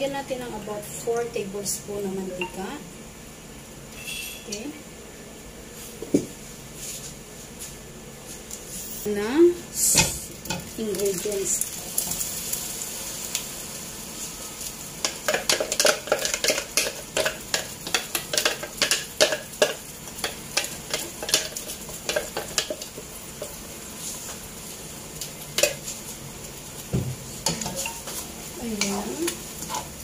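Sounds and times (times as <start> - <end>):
paste sizzling in hot oil: 10.2 - 30.0.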